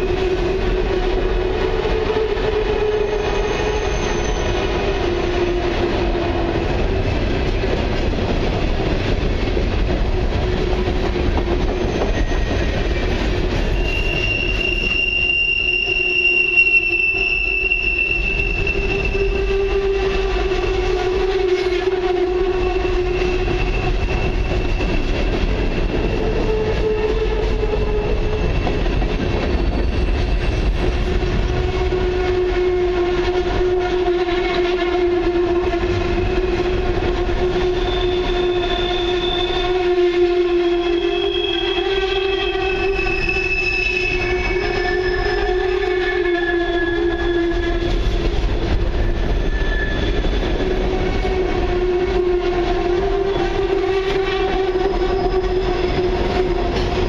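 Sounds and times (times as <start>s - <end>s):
rumble of wheels on rail: 0.0s - 57.0s
wheel squeal: 2.8s - 4.8s, 11.6s - 19.6s, 22.8s - 31.0s, 37.7s - 39.8s, 40.7s - 51.3s.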